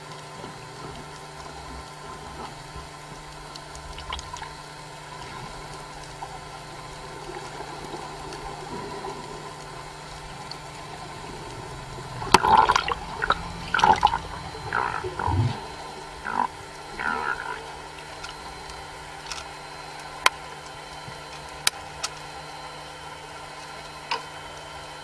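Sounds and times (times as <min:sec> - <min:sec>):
low hum: 0:00.0 - 0:23.8
underwater water noise: 0:00.0 - 0:25.0
loud rough sounds: 0:11.4 - 0:18.7.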